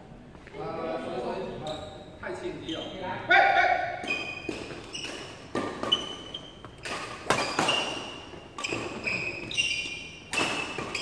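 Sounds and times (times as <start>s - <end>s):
shoes squeaking on court: 1.6s - 3.0s, 4.0s - 11.0s
racket hitting shuttlecock: 4.0s - 11.0s.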